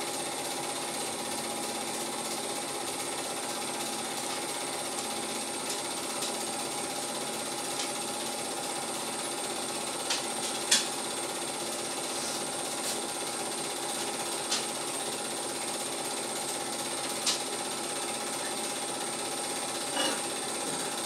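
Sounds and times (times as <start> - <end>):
film projector whirr and clatter: 0.0 - 21.0
sharp projector clicks: 9.9 - 11.2, 14.4 - 14.8, 17.0 - 17.6.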